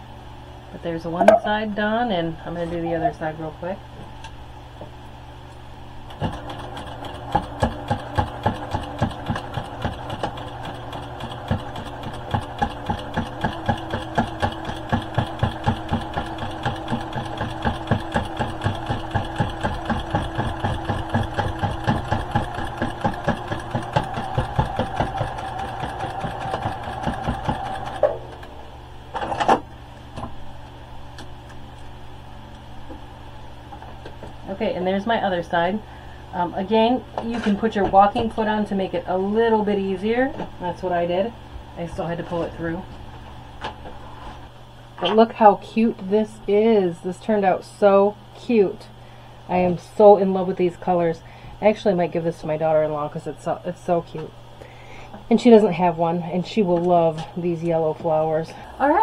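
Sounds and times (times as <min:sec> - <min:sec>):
sewing machine stitching: 0:06.1 - 0:28.0.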